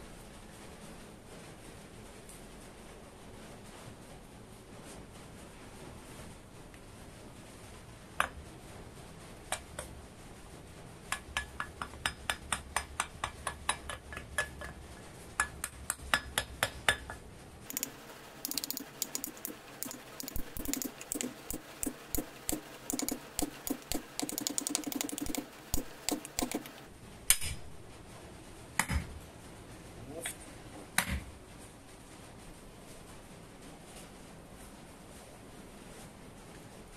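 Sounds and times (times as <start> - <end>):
hammer tapping wooden block: 11.1 - 14.8, 15.4 - 26.9.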